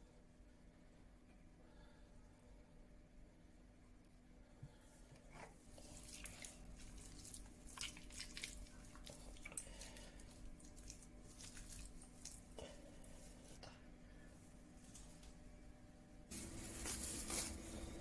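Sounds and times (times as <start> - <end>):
wet squishing of hands mixing: 5.1 - 13.8.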